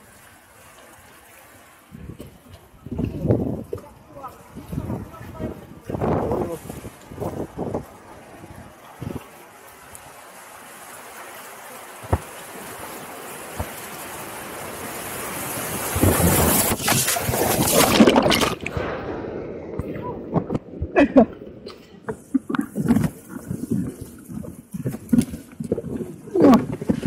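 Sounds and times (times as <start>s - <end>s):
whitewater rapid rushing: 0.0s - 18.8s
boat crashing through waves: 0.0s - 25.2s
water splashing against boat: 0.0s - 27.0s.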